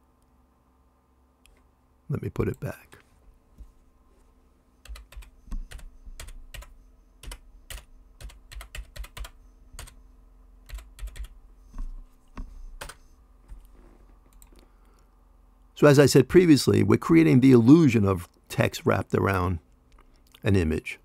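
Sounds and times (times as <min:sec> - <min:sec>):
keyboard typing clicks: 0:04.8 - 0:10.0, 0:10.7 - 0:13.0, 0:14.3 - 0:14.6.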